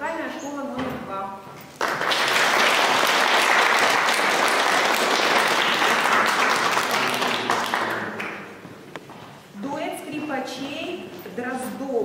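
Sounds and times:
audience applauding: 1.7 - 8.6.

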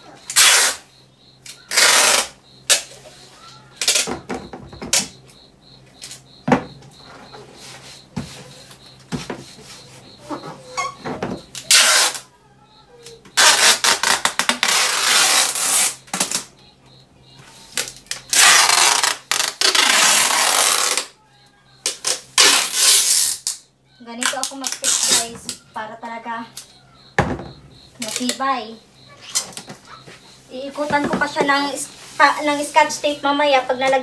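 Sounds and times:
packing tape ripping: 0.3 - 0.8, 1.7 - 2.9, 3.8 - 4.1, 11.6 - 12.2, 13.4 - 16.5, 17.8 - 21.1, 21.8 - 23.6, 24.2 - 25.3.

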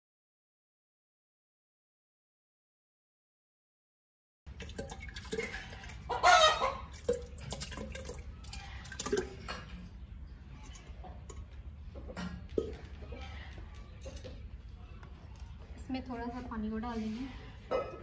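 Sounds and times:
chickens clucking: 4.9 - 15.6.

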